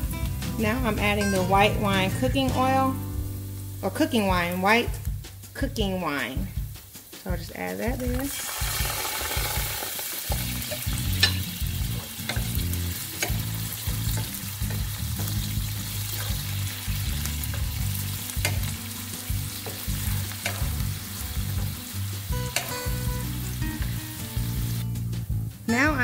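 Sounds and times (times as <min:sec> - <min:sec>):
wine sizzling in hot oil: 0:00.0 - 0:25.4
wooden spoon knocking pan: 0:18.4 - 0:18.8.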